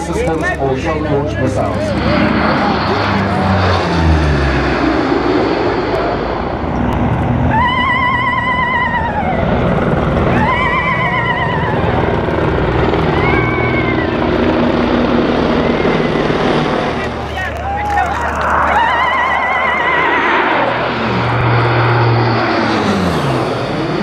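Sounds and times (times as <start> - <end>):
helicopters flying: 0.0 - 24.0
turboprop aircraft passing overhead: 0.0 - 24.0
warbling whistle-like tone: 7.5 - 9.5, 17.6 - 21.8.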